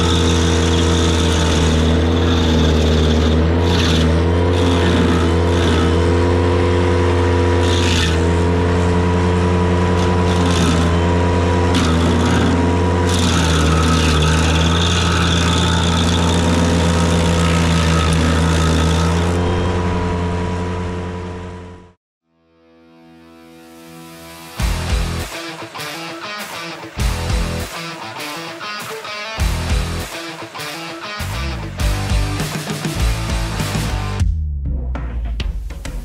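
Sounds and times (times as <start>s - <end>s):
tractor engine running hard: 0.0s - 22.0s.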